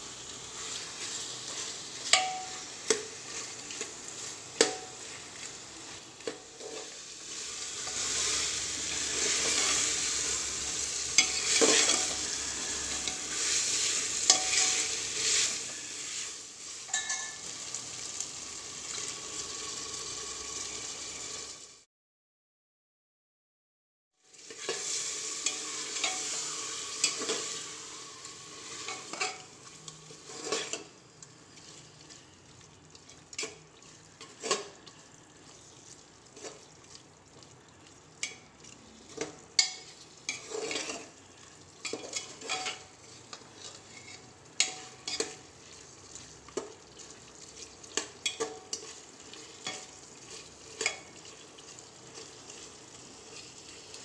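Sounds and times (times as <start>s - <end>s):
meat frying sizzle: 0.0s - 21.9s, 24.2s - 54.0s
metal spatula scraping pot: 0.6s - 16.3s, 24.4s - 32.4s, 33.0s - 36.7s, 38.2s - 54.0s.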